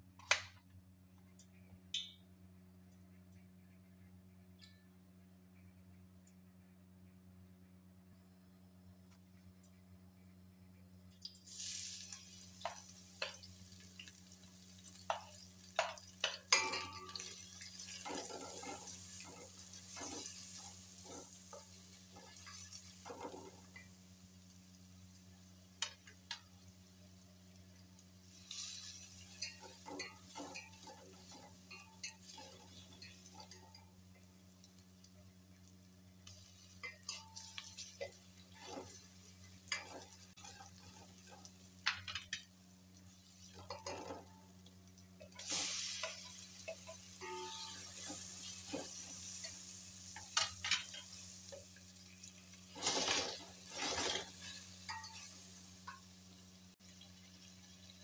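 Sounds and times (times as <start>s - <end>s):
onions sizzling in hot oil: 11.3s - 58.0s
spatula scraping a pot: 36.8s - 39.1s, 52.7s - 55.3s.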